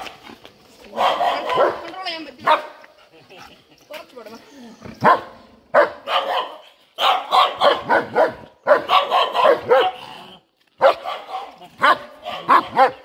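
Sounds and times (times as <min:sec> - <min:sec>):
dog barking: 0:00.9 - 0:02.8, 0:05.0 - 0:10.1, 0:10.8 - 0:13.0.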